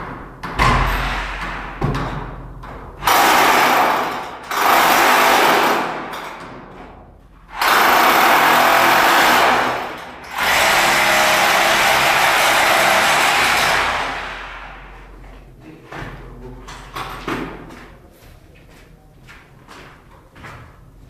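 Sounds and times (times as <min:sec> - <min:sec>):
handheld power tool running: 0:03.0 - 0:05.9, 0:07.6 - 0:14.8.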